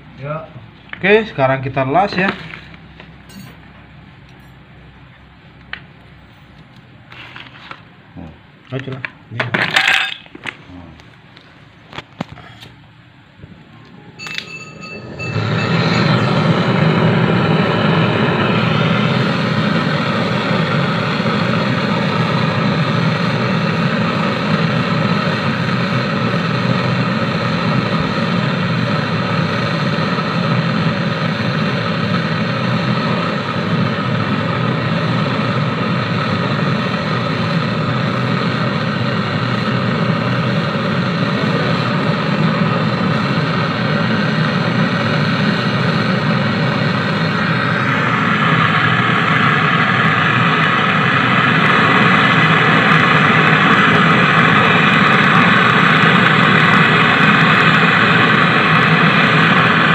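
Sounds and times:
torch flame hissing: 14.7s - 59.9s.

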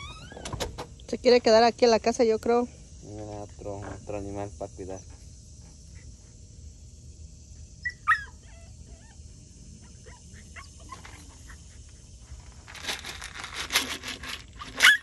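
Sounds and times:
small dog crying: 0.0s - 0.4s, 7.8s - 9.2s, 9.8s - 11.2s, 14.8s - 15.0s
faint short squeaks: 0.0s - 0.7s.

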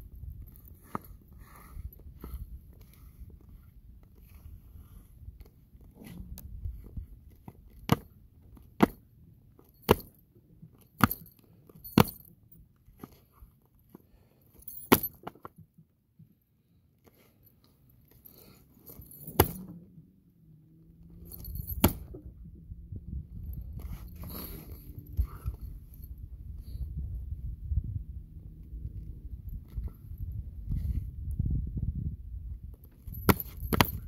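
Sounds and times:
low rumble: 19.6s - 33.2s.

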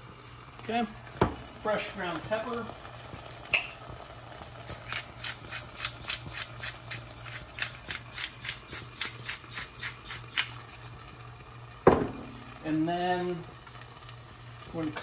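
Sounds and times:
pepper mill grinding: 4.6s - 10.8s.

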